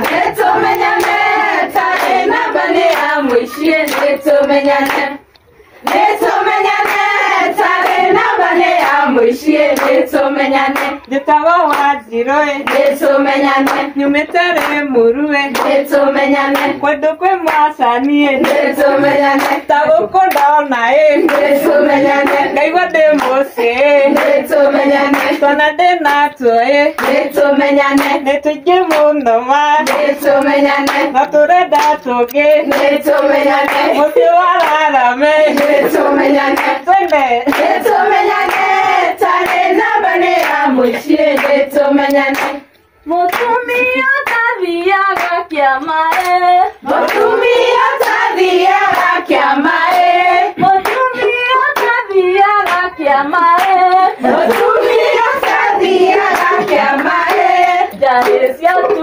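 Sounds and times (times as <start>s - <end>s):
hands clapping in rhythm: 0.0s - 59.0s
women singing together: 0.0s - 59.0s.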